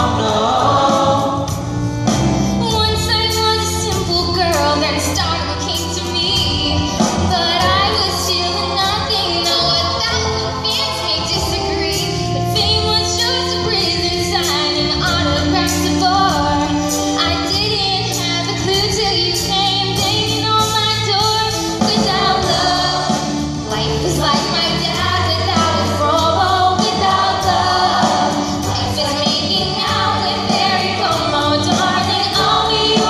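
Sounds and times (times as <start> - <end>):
choir and soloists singing: 0.0 - 1.8, 24.3 - 33.0
drum beat and bass: 0.0 - 33.0.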